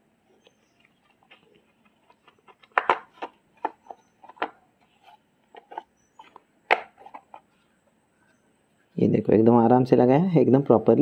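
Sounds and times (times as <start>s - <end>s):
plastic parts clicking and knocking: 0.4s - 7.5s.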